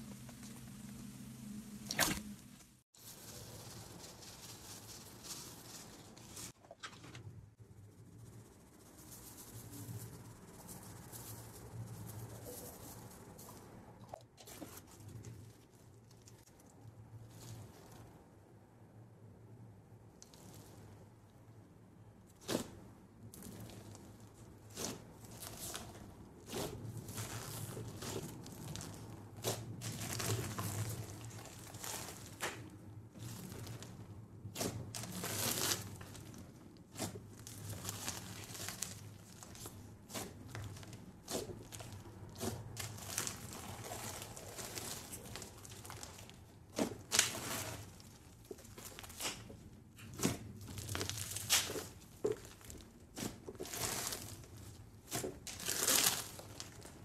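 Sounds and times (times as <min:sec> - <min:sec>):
slime crackling and popping: 0:36.9 - 0:54.5, 0:55.1 - 0:57.0.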